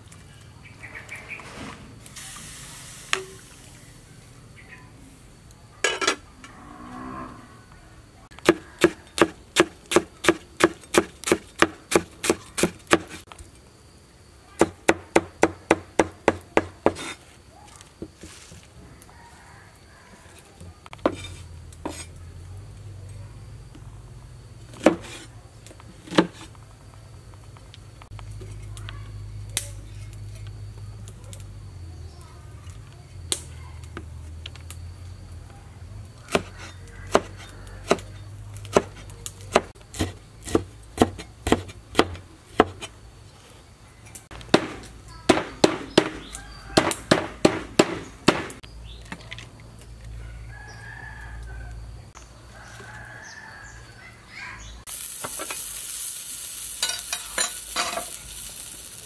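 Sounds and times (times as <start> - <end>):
cleaver chopping on wooden board: 8.4 - 13.2, 14.6 - 17.1, 36.3 - 38.1, 38.7 - 42.9, 44.4 - 48.6.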